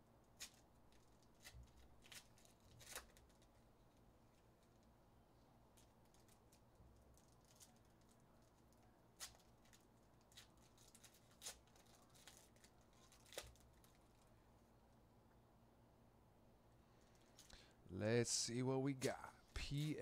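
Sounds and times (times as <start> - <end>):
wrappers crinkling and tearing: 0.4 - 3.6, 5.8 - 14.3.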